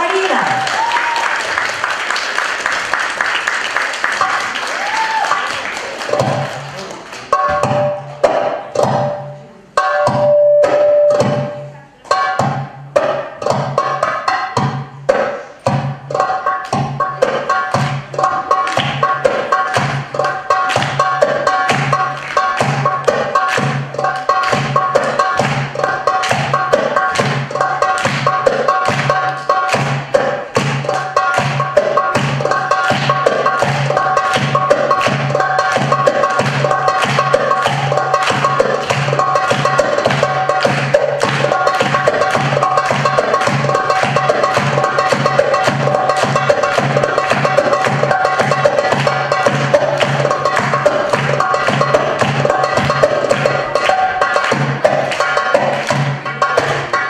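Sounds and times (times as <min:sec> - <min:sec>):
crowd noise: 0:00.0 - 0:12.5
goblet drum played by hand: 0:06.1 - 0:06.6, 0:07.3 - 0:57.0.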